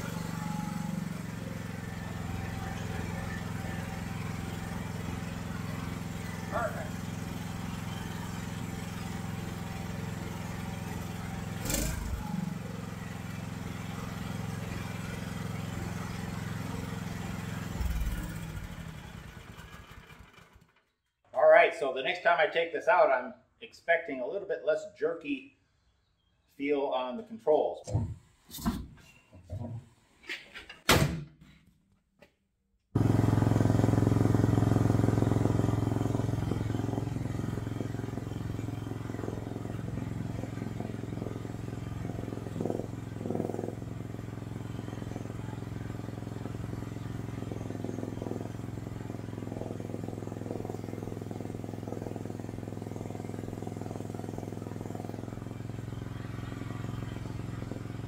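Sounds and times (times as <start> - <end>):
small gasoline engine running: 0.0 - 20.9, 33.0 - 58.0.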